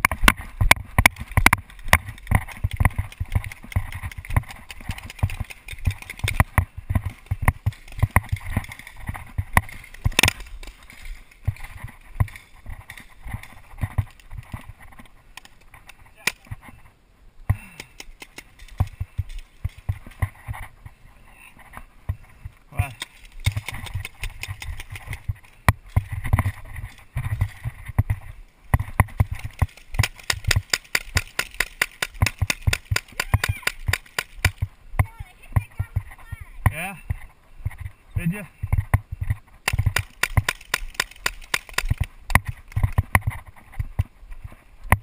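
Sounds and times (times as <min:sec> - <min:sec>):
sharp crack: 0:00.0 - 0:14.3, 0:17.5 - 0:20.3, 0:22.8 - 0:26.6, 0:28.7 - 0:34.7, 0:39.6 - 0:43.4
gear knocking against camera: 0:00.0 - 0:16.7, 0:23.0 - 0:37.9, 0:38.6 - 0:44.1
running footsteps on grass: 0:00.0 - 0:17.0, 0:17.6 - 0:45.0.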